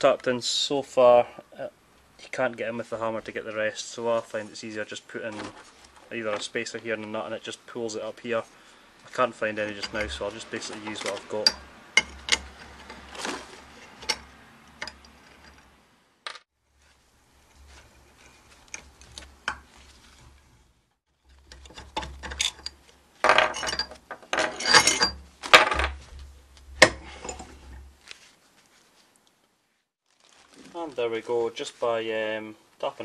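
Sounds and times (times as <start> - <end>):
metal clinks: 21.5 - 25.2.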